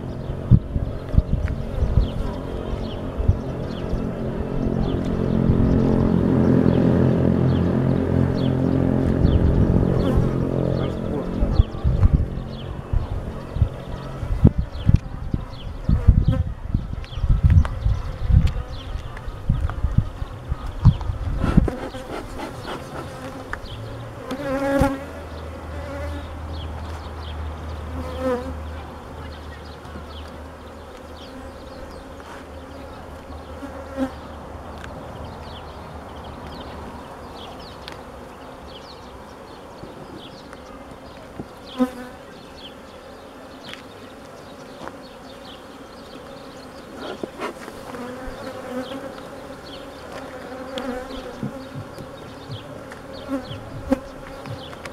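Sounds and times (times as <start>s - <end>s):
honeybees buzzing: 0.0s - 54.9s
bee droning past: 0.1s - 16.6s, 20.0s - 29.0s, 41.7s - 54.9s.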